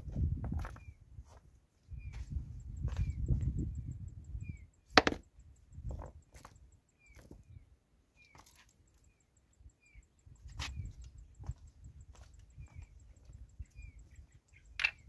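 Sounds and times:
stone clacking on stone: 0:05.0 - 0:05.2
stones knocking and scraping: 0:05.0 - 0:05.2.

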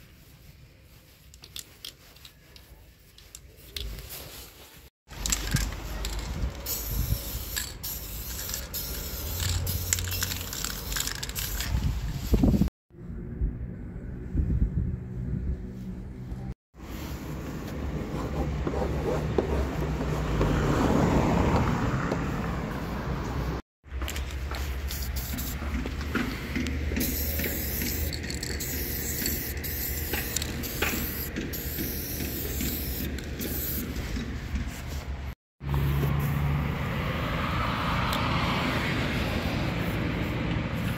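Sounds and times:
spray paint can hissing: 0:05.1 - 0:12.7, 0:24.4 - 0:25.8, 0:26.4 - 0:34.1.

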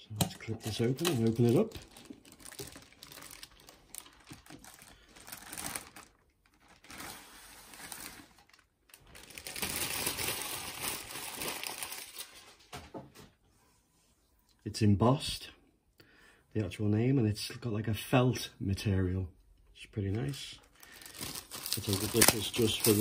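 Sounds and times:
plastic wrapping crinkling: 0:00.4 - 0:12.8, 0:20.6 - 0:23.0.

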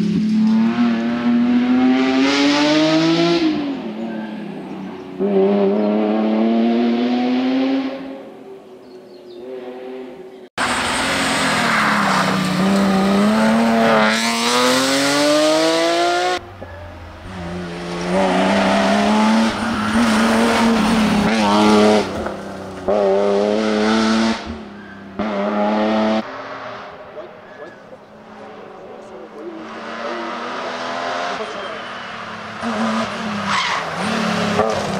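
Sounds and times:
rally car engine at full throttle: 0:00.0 - 0:08.4, 0:09.5 - 0:34.9.

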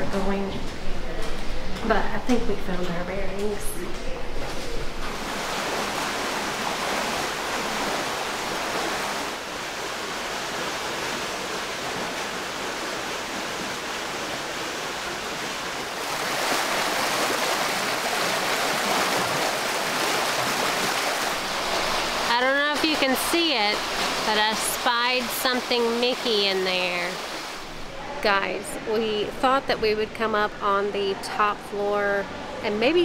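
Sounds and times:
water splashing in a spring: 0:05.1 - 0:27.8.

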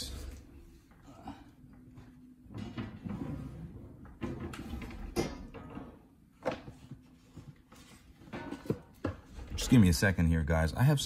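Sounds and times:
rustling and shuffling: 0:06.6 - 0:09.7.

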